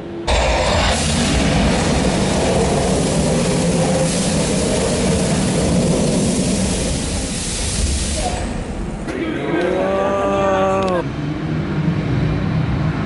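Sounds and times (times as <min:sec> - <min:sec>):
rumbling roar of fire blast: 0:00.0 - 0:09.0.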